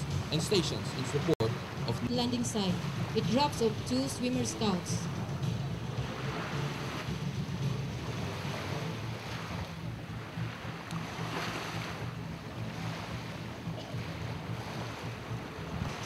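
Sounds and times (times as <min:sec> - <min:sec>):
outboard motor humming: 0:00.0 - 0:16.0
wind noise on microphone: 0:05.0 - 0:16.0.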